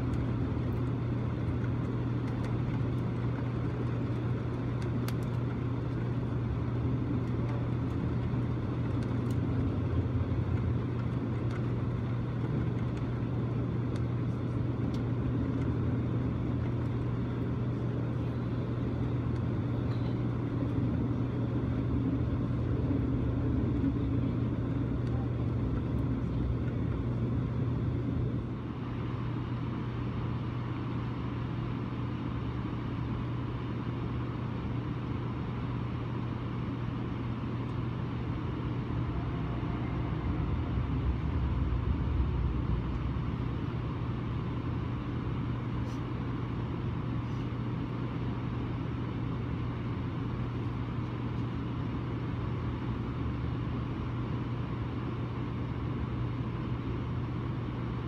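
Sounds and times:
train rumble and hum: 0.0s - 30.0s, 37.6s - 47.4s.

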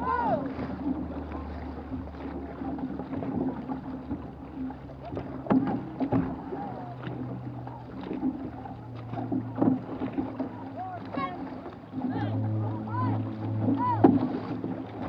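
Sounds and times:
paddles splashing through water: 0.0s - 15.0s
wash of the hull: 0.0s - 15.0s
steady low hum: 4.1s - 15.0s.

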